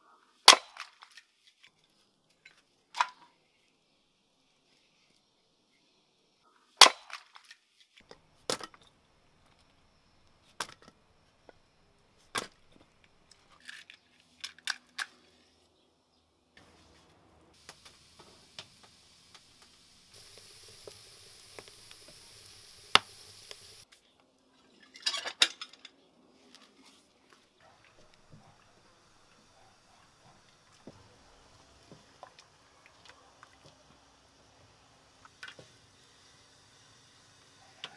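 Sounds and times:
axe splitting firewood: 6.8s - 7.2s, 12.2s - 13.8s
steady hiss: 8.0s - 13.6s, 16.6s - 23.9s, 27.6s - 37.9s.

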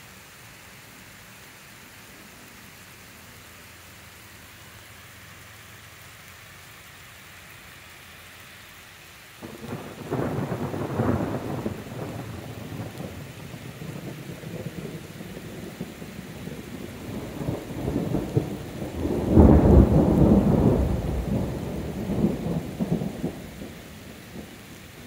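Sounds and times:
steady rain: 0.0s - 25.0s
thunder rumbling: 9.4s - 25.0s.

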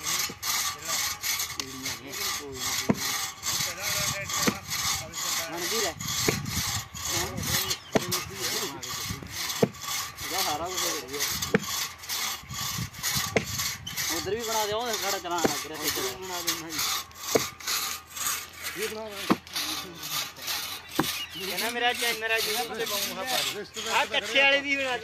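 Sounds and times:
hand saw rasping through wood: 0.0s - 25.0s.

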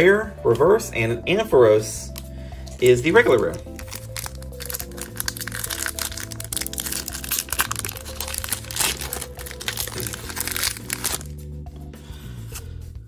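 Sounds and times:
background music: 0.0s - 13.0s
foil wrapper crinkling: 2.6s - 11.3s.

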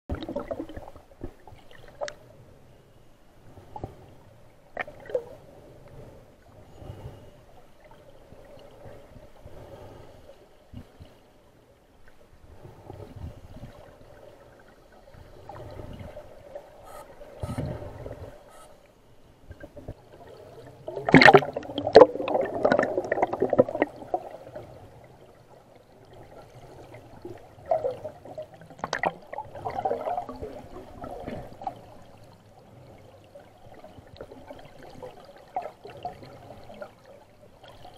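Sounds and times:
underwater air bubbling: 0.1s - 2.2s, 12.5s - 18.8s, 19.4s - 37.9s.

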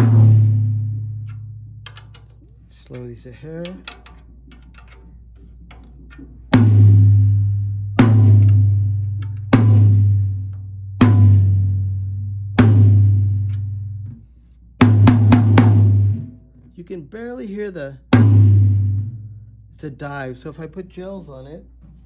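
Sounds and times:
tom drum hits: 0.0s - 1.1s, 6.5s - 10.2s, 11.0s - 11.8s, 12.6s - 13.4s, 14.8s - 16.3s, 18.1s - 19.2s.

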